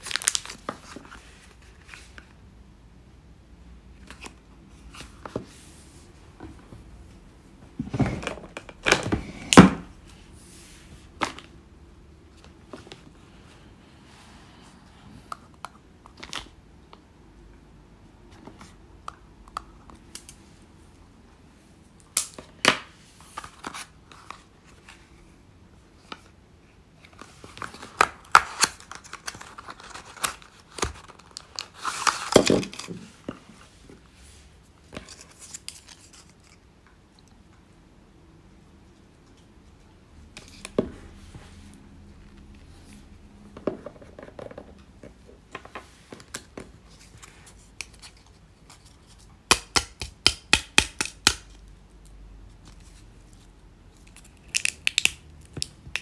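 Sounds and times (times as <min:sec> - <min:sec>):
packaging tearing: 0:00.0 - 0:00.6
packaging crinkling and rustling: 0:00.0 - 0:02.0, 0:27.1 - 0:33.2.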